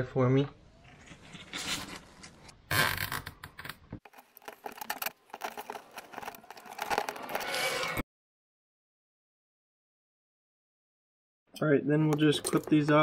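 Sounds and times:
plastic scraping and rustling: 4.0s - 8.0s.

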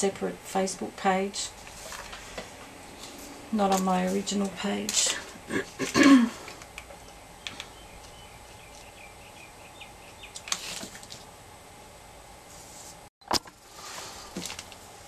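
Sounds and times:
small clicks and rustle: 10.3s - 11.3s.

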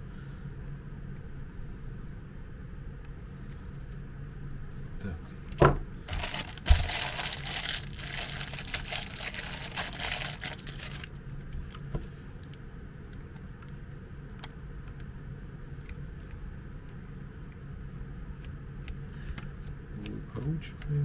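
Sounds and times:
plastic bag crinkling: 6.1s - 11.1s.

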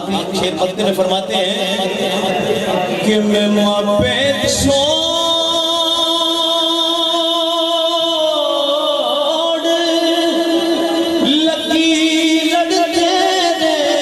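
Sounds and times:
man singing devotional song: 0.0s - 14.0s.

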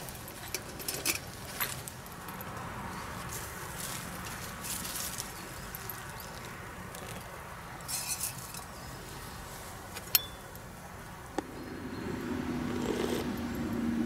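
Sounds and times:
rustle of dry leaves: 0.0s - 10.8s
sharp clink: 10.1s - 10.5s.

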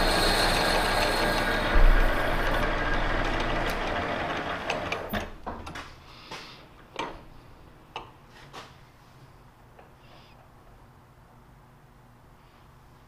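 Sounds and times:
metal lathe spindle running down: 0.0s - 5.3s.

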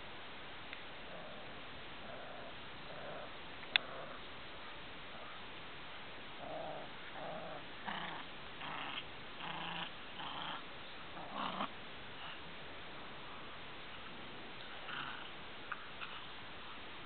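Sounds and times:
small dogs play-growling: 1.0s - 4.5s, 6.4s - 12.5s, 14.0s - 16.7s.

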